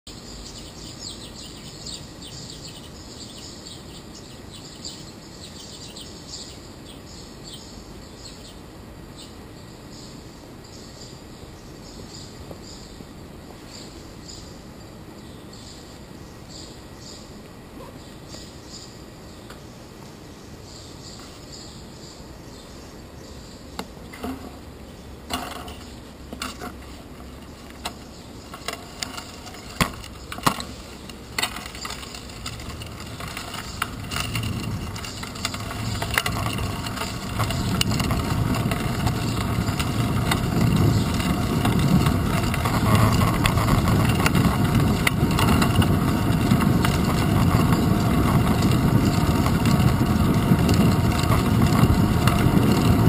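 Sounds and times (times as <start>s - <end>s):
bicycle knocks and rattles: 23.8s - 53.0s
wind rush and tyre noise: 26.5s - 53.0s.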